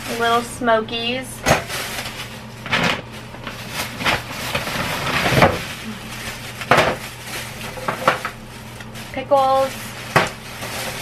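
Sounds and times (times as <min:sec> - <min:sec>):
plastic bag rustling: 0:00.0 - 0:11.0
items set down on counter: 0:06.6 - 0:07.0.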